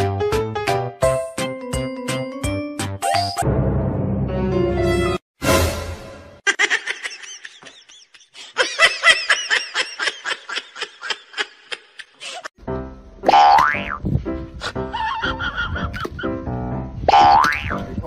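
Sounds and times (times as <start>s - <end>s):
high-pitched laughter: 6.4s - 12.5s, 14.6s - 16.2s.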